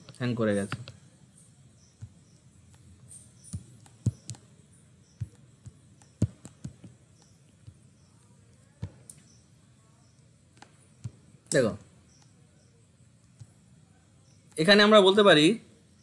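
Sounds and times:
computer mouse clicks: 2.0s - 9.3s, 10.1s - 11.2s, 13.2s - 13.6s.

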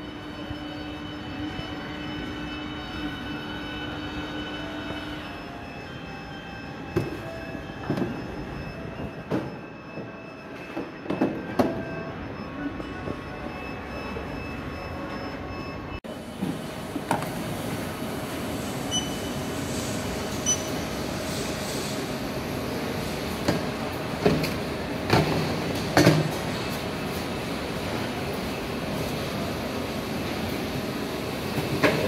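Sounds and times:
short high beeps: 18.9s - 19.3s, 20.4s - 20.8s.

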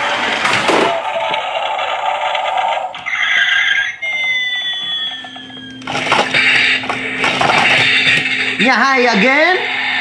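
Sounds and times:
synthesized toy engine noise: 0.0s - 10.0s.

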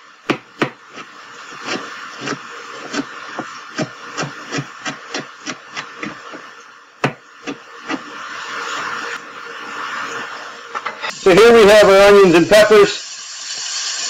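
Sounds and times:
knife chopping on plastic board: 0.3s - 0.8s, 1.6s - 6.2s, 7.0s - 8.0s.

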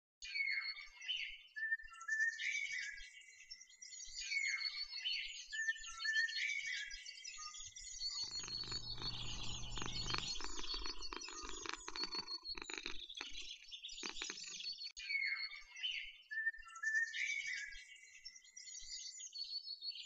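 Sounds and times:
small birds chirping: 0.4s - 20.0s
low hum: 8.2s - 13.0s
steady noise: 8.2s - 13.0s.

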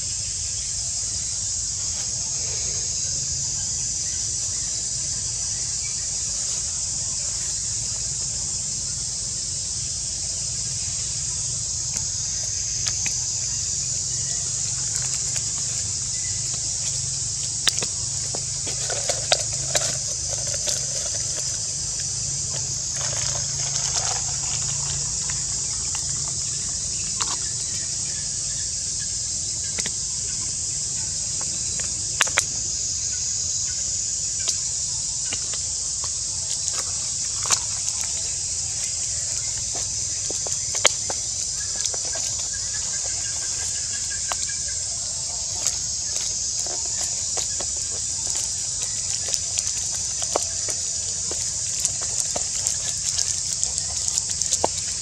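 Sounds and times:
high-pitched insect drone: 0.0s - 55.0s.

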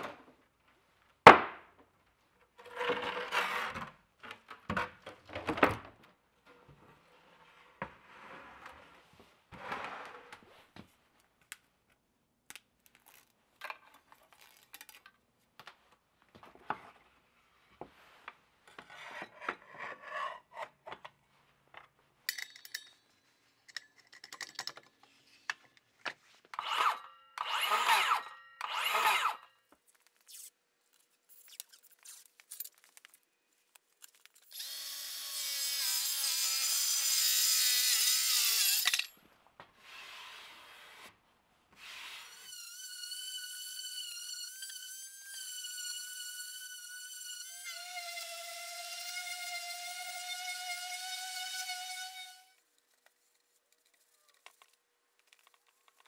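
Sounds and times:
metal clicks and rattles: 23.6s - 25.0s
circular saw cutting wood: 26.6s - 29.5s, 34.5s - 39.1s, 41.8s - 52.6s
circular saw spinning up: 26.6s - 29.5s, 34.5s - 39.1s, 41.8s - 52.6s.

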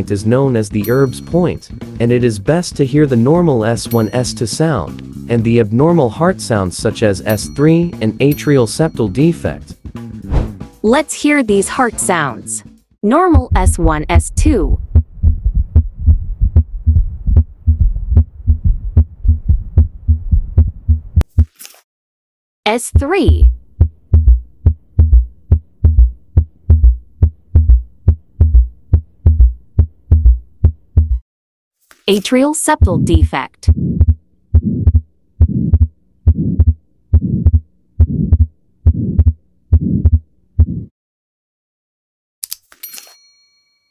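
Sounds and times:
short whoosh: 10.2s - 10.6s
heartbeat through stethoscope: 13.3s - 21.5s, 22.9s - 31.2s, 32.8s - 40.9s
chime: 42.8s - 43.9s.

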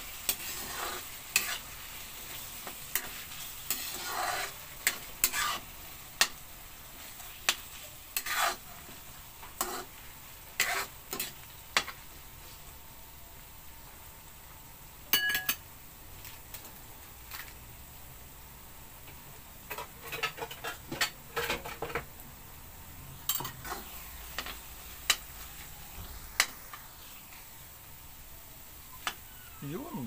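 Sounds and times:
food sizzling: 0.0s - 30.0s
spatula scraping metal wok: 0.1s - 6.4s, 7.0s - 12.0s, 19.7s - 21.9s, 23.2s - 27.5s.

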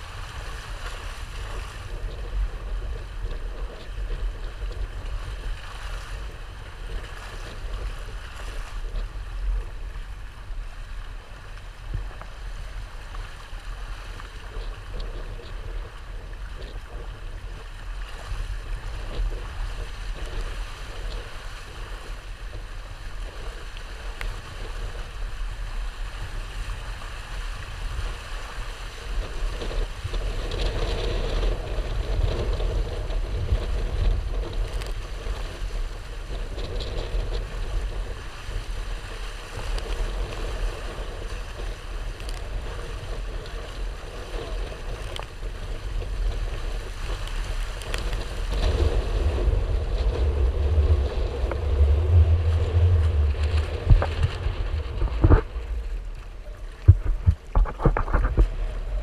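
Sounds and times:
water rushing along a hull: 0.0s - 59.0s
wind buffeting microphone: 0.0s - 59.0s.

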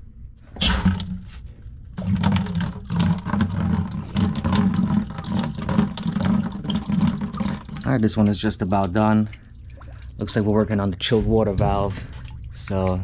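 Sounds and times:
water rushing out of a drain: 2.0s - 8.0s.

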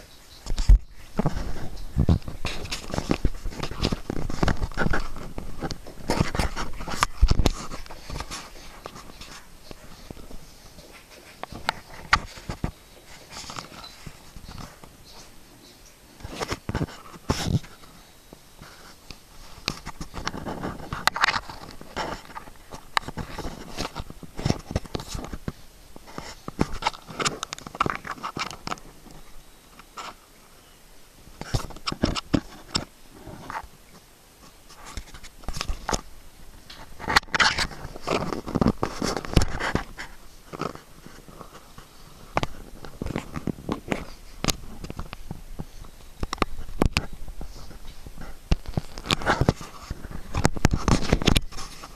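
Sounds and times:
hand rubbing on camera: 0.5s - 15.4s.

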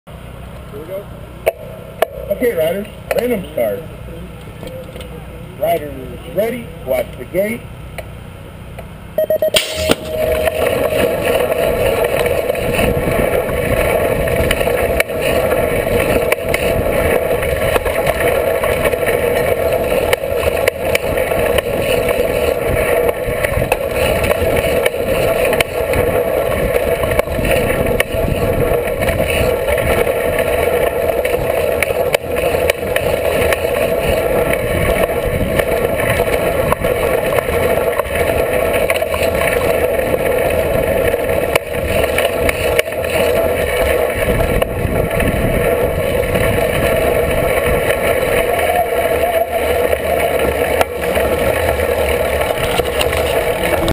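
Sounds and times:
bike tyre rolling on dirt: 9.2s - 53.9s
wind on microphone: 9.7s - 53.9s.

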